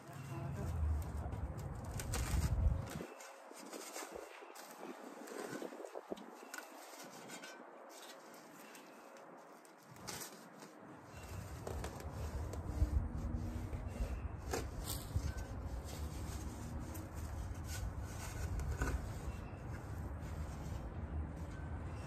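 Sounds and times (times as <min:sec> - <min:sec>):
shovel scraping into soil: 0:13.7 - 0:20.7.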